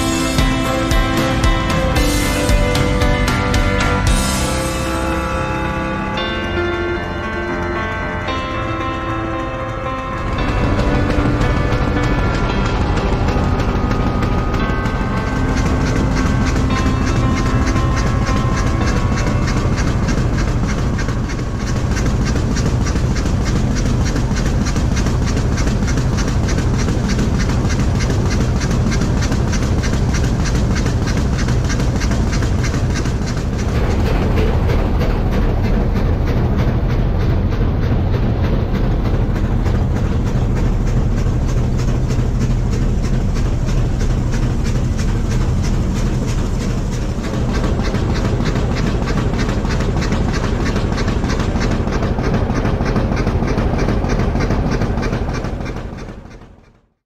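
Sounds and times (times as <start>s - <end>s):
steam locomotive chugging: 0.0s - 57.0s.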